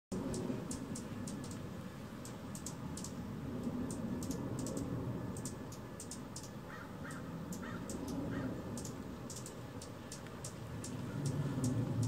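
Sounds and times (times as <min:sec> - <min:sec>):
steady low rumble: 0:00.1 - 0:12.0
birds chipping: 0:00.2 - 0:12.0
harsh low bird calls: 0:04.2 - 0:12.0.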